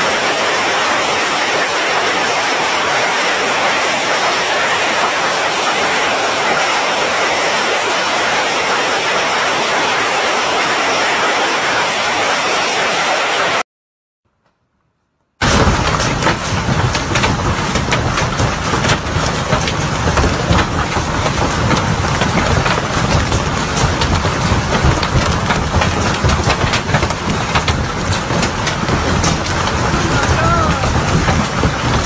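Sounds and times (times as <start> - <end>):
hailstones ticking: 0.0 - 11.4, 15.4 - 32.0
hail pelting down: 0.0 - 13.4, 15.4 - 32.0
heavy low rumble: 15.4 - 32.0.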